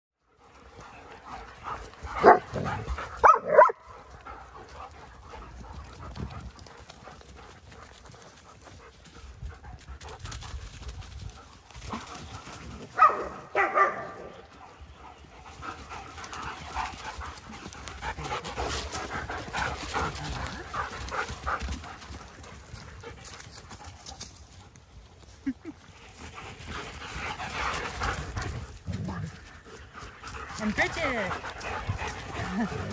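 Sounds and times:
dog panting: 0:00.3 - 0:12.8, 0:14.4 - 0:32.9
dog barking: 0:02.2 - 0:03.8, 0:13.0 - 0:14.3.

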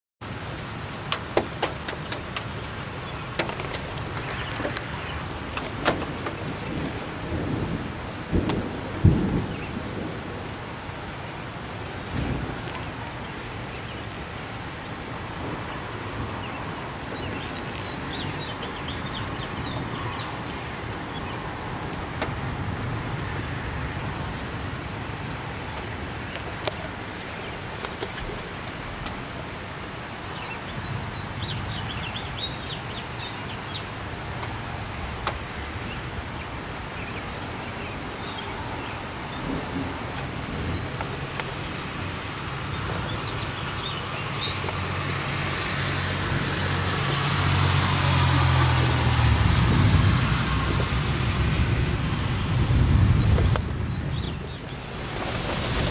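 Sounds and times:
raindrops ticking: 0:00.2 - 0:55.9
steady rain: 0:00.2 - 0:55.9
bird chirping: 0:16.4 - 0:20.4.

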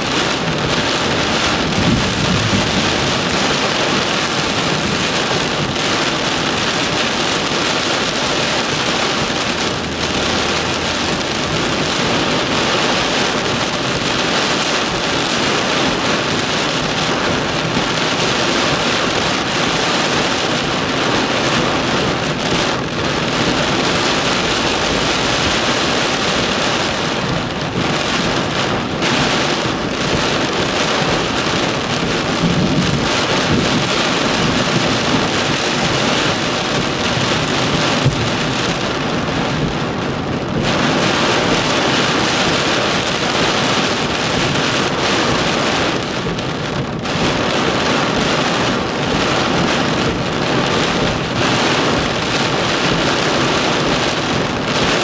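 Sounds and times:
heavy rain on windshield: 0:00.0 - 0:55.0.

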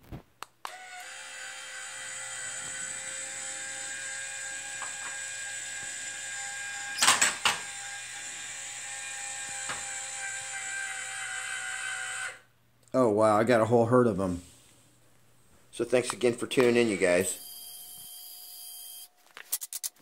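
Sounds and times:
small electric motor whine: 0:00.7 - 0:12.5, 0:17.4 - 0:19.1.

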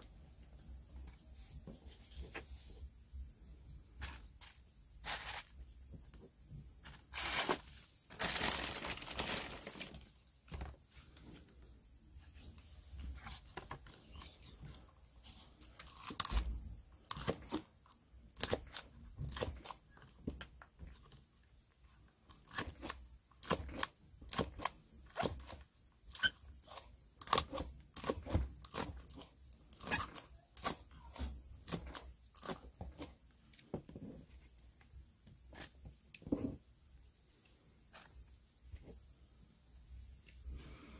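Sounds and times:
rustling handling noise: 0:00.1 - 0:16.4
knife slicing onion: 0:22.4 - 0:33.2.

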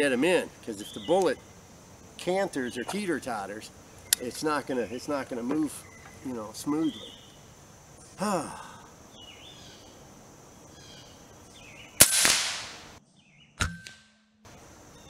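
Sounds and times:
air rifle shot crack: 0:12.0 - 0:13.0.

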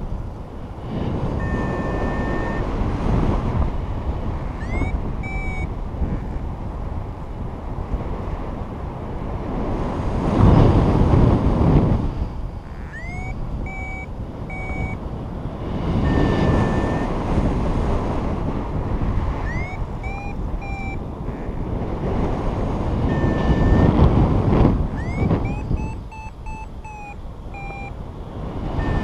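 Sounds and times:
wind rushing over microphone: 0:00.0 - 0:29.0
variometer steady tone: 0:01.2 - 0:06.2, 0:10.6 - 0:29.0
variometer rising chirps: 0:01.4 - 0:02.8, 0:04.5 - 0:05.8, 0:12.1 - 0:15.1, 0:16.0 - 0:17.3, 0:19.4 - 0:21.6, 0:23.0 - 0:24.1, 0:24.8 - 0:28.0, 0:28.7 - 0:29.0.

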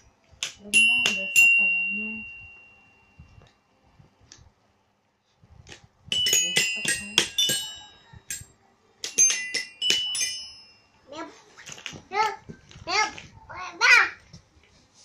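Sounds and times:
toy xylophone struck with mallet: 0:00.7 - 0:03.0, 0:06.1 - 0:10.9.

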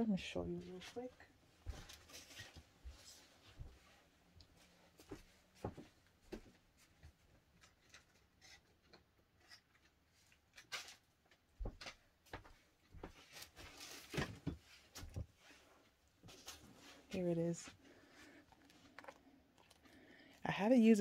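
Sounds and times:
objects tapped and moved about: 0:07.6 - 0:15.4.

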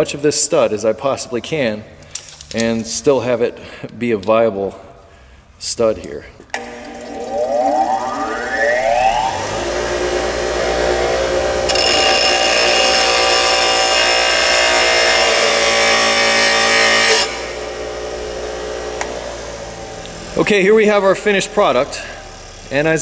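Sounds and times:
metal grinding: 0:06.6 - 0:19.0
bench grinder motor humming: 0:06.6 - 0:20.4, 0:21.7 - 0:22.9.

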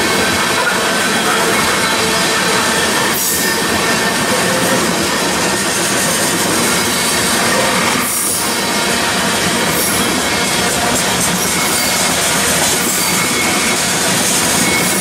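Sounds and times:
freight train wheels rattling: 0:00.0 - 0:15.0.

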